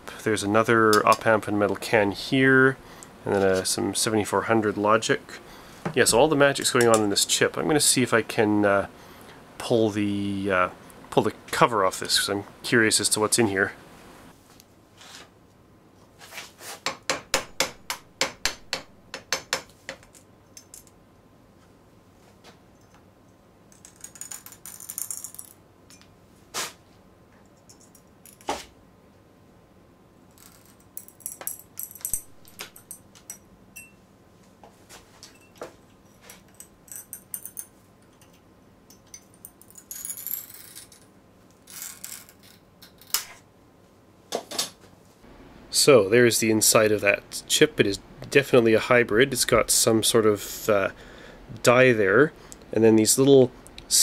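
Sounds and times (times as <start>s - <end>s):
metal tools clicking on metal: 20.0s - 21.0s, 27.5s - 28.5s, 30.4s - 34.0s, 36.2s - 41.1s.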